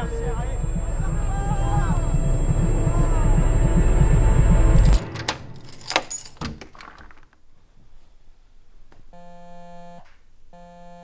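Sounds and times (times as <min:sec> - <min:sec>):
keys jangling: 0:04.8 - 0:07.0.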